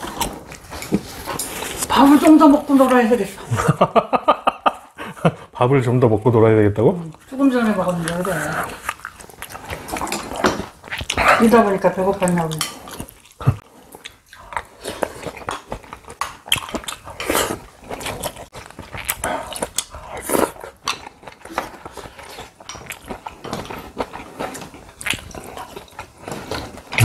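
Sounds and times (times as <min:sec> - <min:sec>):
chewing and mouth smacking: 0:07.0 - 0:11.6, 0:12.2 - 0:27.0.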